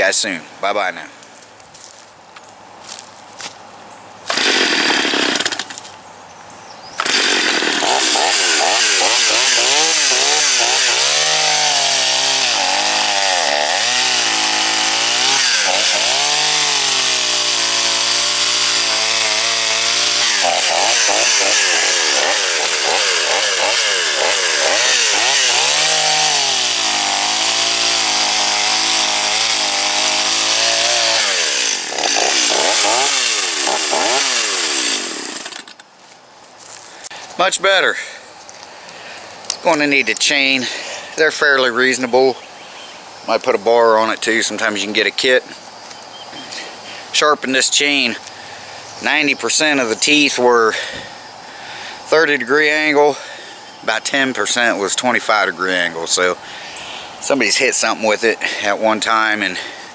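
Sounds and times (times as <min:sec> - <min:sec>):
chainsaw cutting through log: 0:04.3 - 0:05.8, 0:07.0 - 0:35.8.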